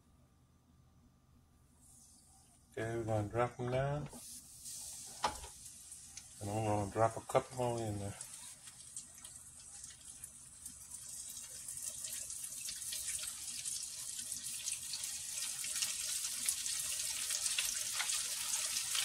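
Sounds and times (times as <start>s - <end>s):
hot oil sizzling and crackling: 4.2s - 19.0s.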